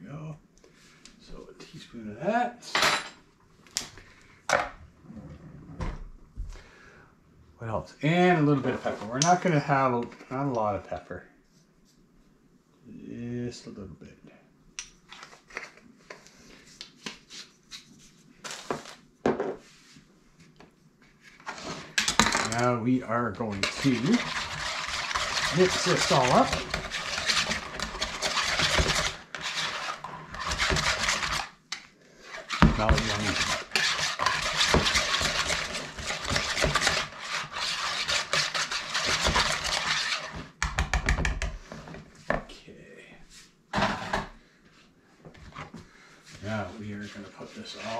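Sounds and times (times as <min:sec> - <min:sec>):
utensil stirring in plastic bowl: 0:21.4 - 0:31.6, 0:32.2 - 0:40.7.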